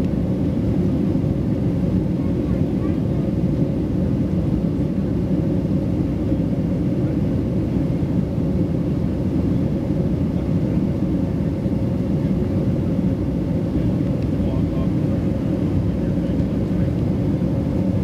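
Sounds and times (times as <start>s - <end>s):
jet engines rumbling in cabin: 0.0s - 18.0s.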